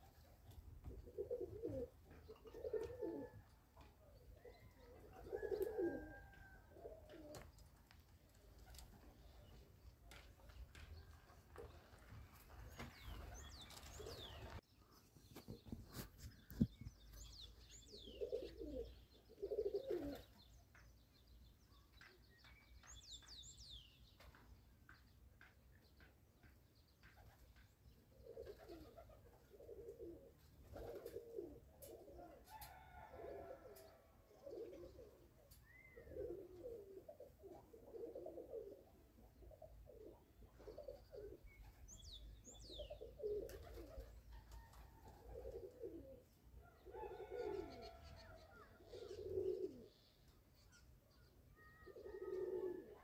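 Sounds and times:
pigeons cooing: 0:00.0 - 0:07.6, 0:12.7 - 0:14.6, 0:17.9 - 0:20.5, 0:28.1 - 0:50.2, 0:51.2 - 0:53.0
small birds chirping: 0:08.6 - 0:29.6, 0:40.6 - 0:44.3, 0:46.7 - 0:52.8.

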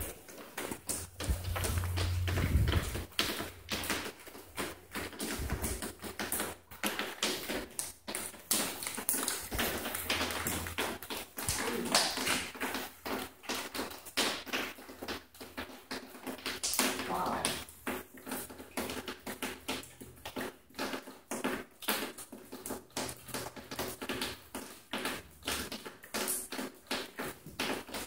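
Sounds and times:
footsteps crunching on debris: 0:00.0 - 0:12.2.

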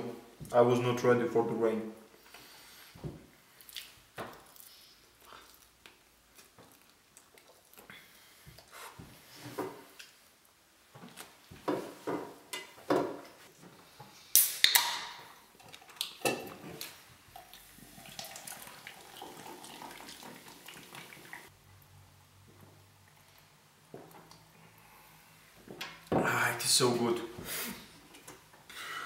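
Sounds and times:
can opening crack and hiss: 0:14.3 - 0:15.2
beer pouring into mug: 0:17.4 - 0:21.4.

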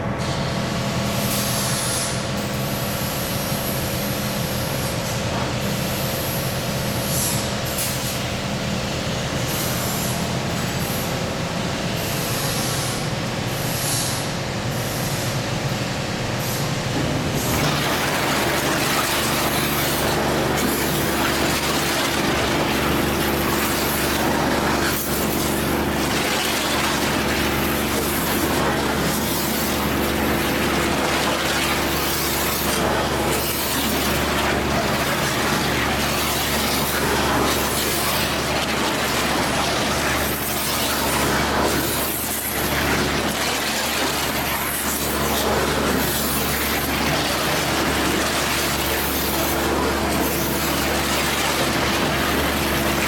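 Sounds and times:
pump humming: 0:00.0 - 0:53.0
water jets spraying plastic tank: 0:16.1 - 0:53.0.

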